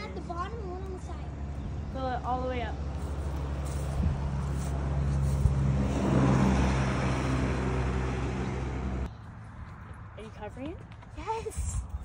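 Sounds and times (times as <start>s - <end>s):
vehicle driving past: 1.2s - 10.0s.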